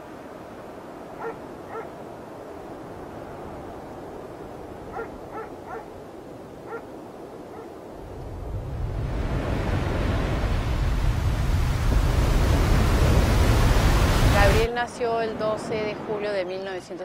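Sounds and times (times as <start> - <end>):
dog barking: 1.2 - 2.0, 4.9 - 6.0, 6.6 - 6.9, 7.5 - 7.7.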